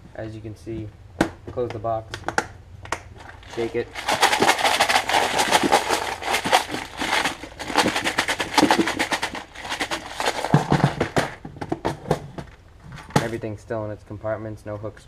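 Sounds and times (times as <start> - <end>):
tackle box rattling: 3.2 - 13.4
box knocking on wooden bench: 10.3 - 12.5.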